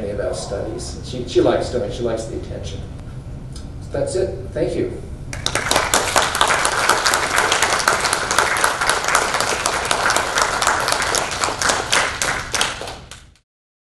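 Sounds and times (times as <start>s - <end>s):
audience applauding: 5.3s - 13.4s.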